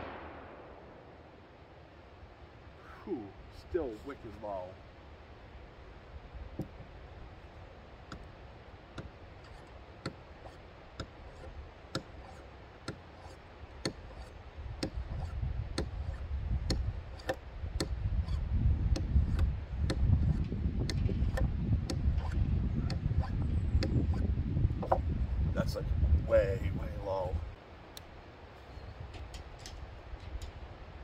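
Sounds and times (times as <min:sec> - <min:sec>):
wind rumble on microphone: 0:13.9 - 0:27.6.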